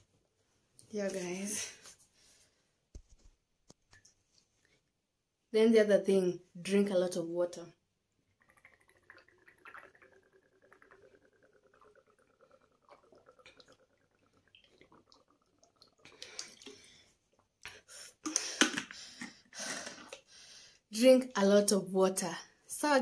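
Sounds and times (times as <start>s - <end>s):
person swallowing water: 8.4s - 17.6s
person breathing: 16.1s - 20.9s.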